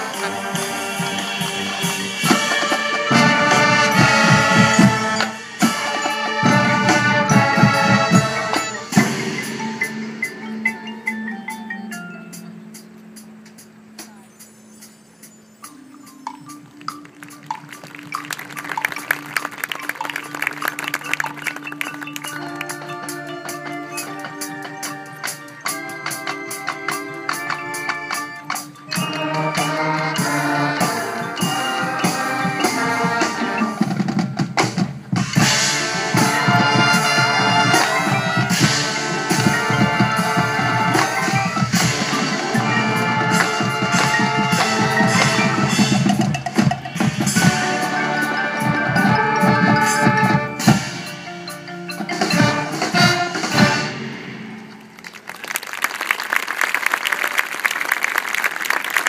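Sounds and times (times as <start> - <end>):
marching band playing: 0.0 - 59.0
audience applauding: 16.7 - 22.8, 54.8 - 59.0.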